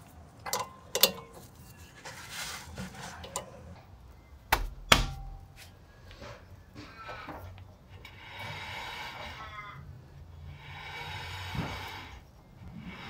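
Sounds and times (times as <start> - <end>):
tools and brake parts knocking: 0.5 - 1.5, 4.5 - 5.6.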